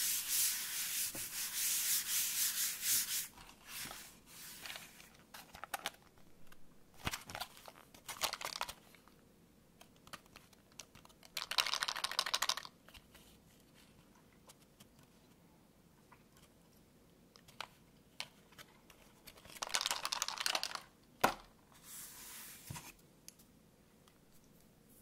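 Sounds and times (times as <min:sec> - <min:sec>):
plastic blister tray crinkling: 0:07.0 - 0:08.8.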